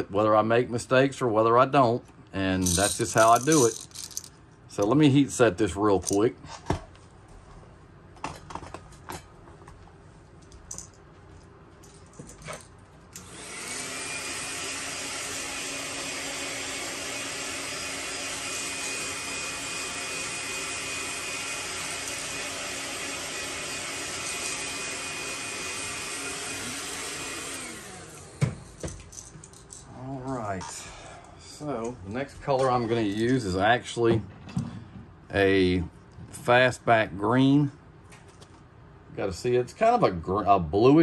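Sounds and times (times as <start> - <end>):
handling clicks and knocks: 2.7 - 4.3
heat gun blowing with whine: 13.2 - 28.6.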